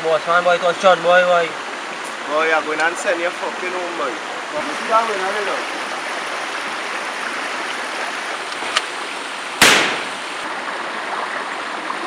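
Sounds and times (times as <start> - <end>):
stream rushing: 0.0 - 12.0
handgun shot: 9.6 - 10.2.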